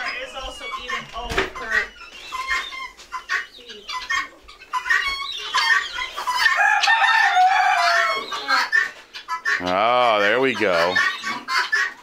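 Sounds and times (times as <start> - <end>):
chickens clucking: 0.0 - 12.0
long drawn-out chicken call: 4.0 - 12.0.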